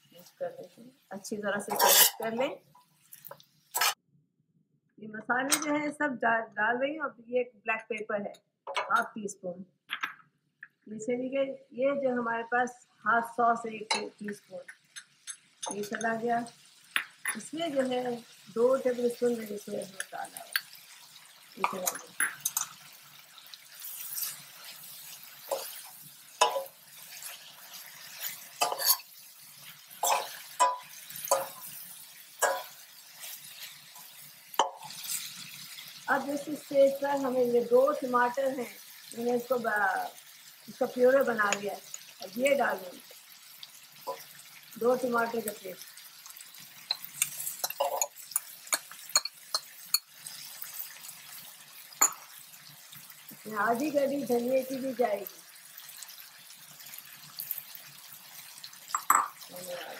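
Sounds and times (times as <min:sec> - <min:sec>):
soft sizzle of frying: 0:00.0 - 0:04.0, 0:11.7 - 0:59.9
metal spoon scraping pan: 0:01.7 - 0:02.4, 0:03.2 - 0:04.0, 0:23.7 - 0:35.4, 0:46.9 - 0:50.6
cup tapping against pan: 0:58.9 - 0:59.4.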